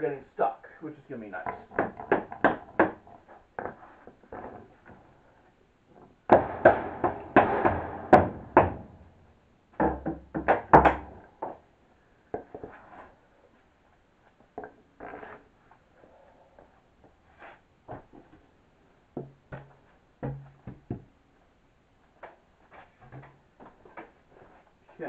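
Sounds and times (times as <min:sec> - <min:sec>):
hammer knocking on wood panels: 0:01.4 - 0:03.8, 0:06.3 - 0:09.1, 0:09.8 - 0:11.6, 0:19.2 - 0:21.1.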